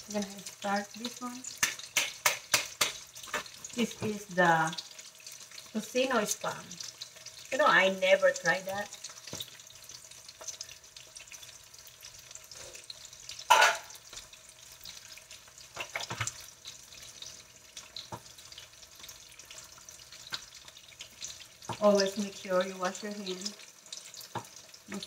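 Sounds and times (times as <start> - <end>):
meat sizzling in oil: 0.0 - 25.0
knocks on a pan: 1.6 - 4.2, 13.5 - 13.9.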